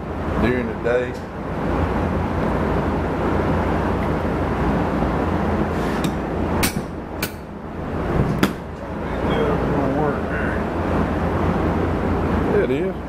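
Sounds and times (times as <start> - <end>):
fan noise: 0.0 - 13.0.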